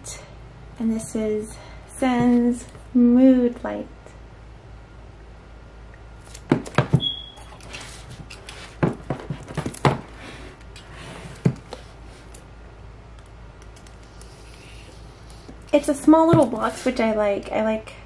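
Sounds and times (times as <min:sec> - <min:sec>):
brief high squeak: 0:07.0 - 0:07.6.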